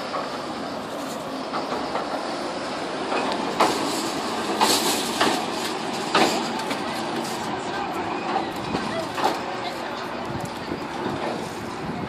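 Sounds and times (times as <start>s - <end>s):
rumble of wheels on rail: 0.0s - 12.0s
wheels clacking over rail joints: 0.0s - 12.0s.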